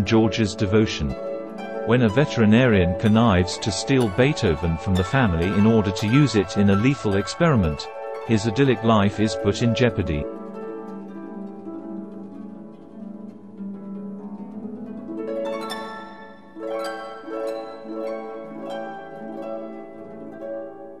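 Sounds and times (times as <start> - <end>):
plucked harp-like strings: 0.0 - 20.4
held low note: 1.8 - 10.4.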